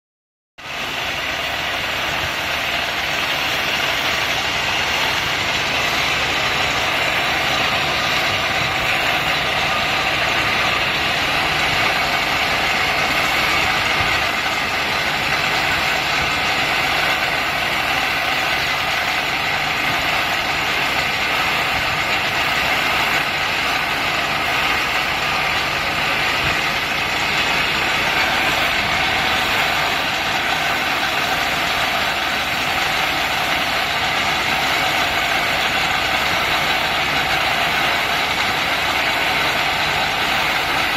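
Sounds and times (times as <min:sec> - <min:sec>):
grinder motor running: 0:00.6 - 0:40.9
belt grinder grinding hiss: 0:00.8 - 0:40.9.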